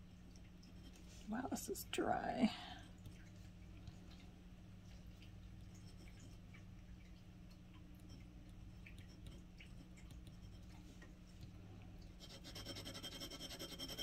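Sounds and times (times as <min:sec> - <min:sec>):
steady low hum: 0:00.0 - 0:14.0
pen nib scratching paper: 0:12.2 - 0:14.0.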